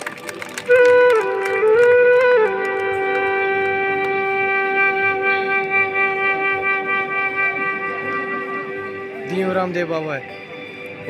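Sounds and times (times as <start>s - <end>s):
instrument holding long note: 0.4s - 10.6s.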